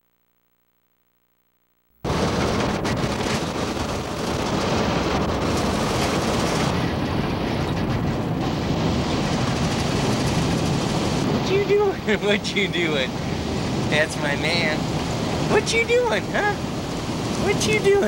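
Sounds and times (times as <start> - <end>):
road and engine noise in cabin: 5.4 - 18.0.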